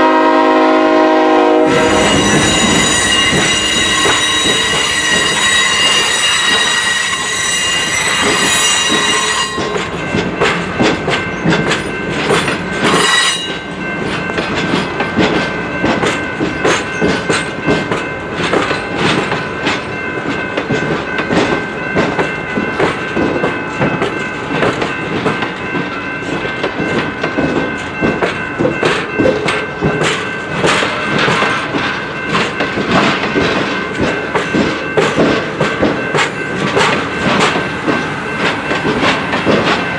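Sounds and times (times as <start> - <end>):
train wheels squealing: 1.7 - 10.1, 11.3 - 13.8
wheels clacking over rail joints: 1.7 - 39.9.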